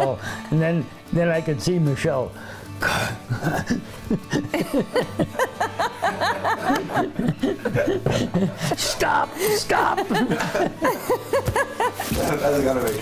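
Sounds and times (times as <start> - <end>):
person chuckling: 3.3 - 8.8.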